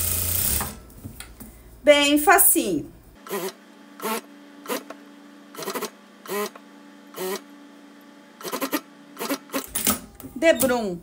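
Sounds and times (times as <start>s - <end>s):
sewing machine motor bursts: 0.0s - 0.8s, 3.2s - 7.5s, 8.4s - 9.7s.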